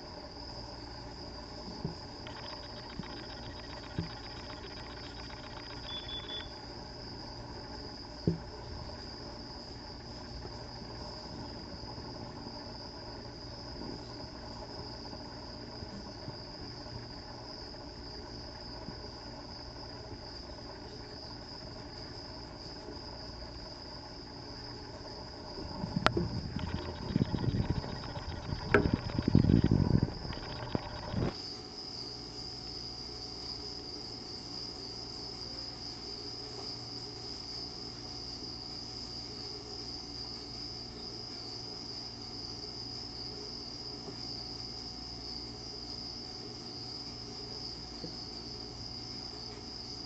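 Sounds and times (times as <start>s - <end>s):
steady high-pitched tone: 2.2s - 6.6s, 25.5s - 31.4s
click: 26.0s - 29.5s.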